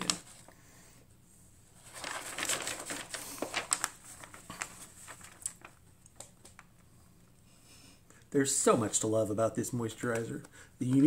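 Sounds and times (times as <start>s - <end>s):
packaging rustling and crinkling: 1.8s - 6.7s.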